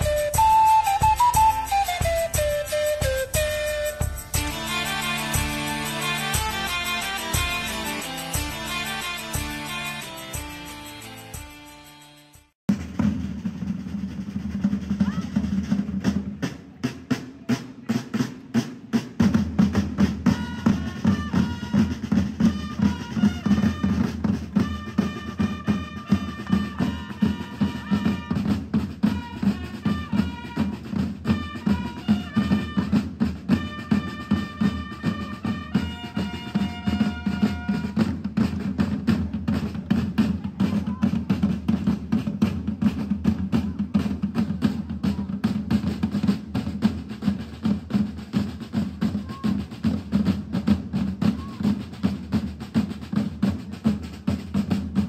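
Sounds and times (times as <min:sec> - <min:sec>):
high held melody: 0:00.0 - 0:12.5
marching side drums: 0:00.0 - 0:55.0.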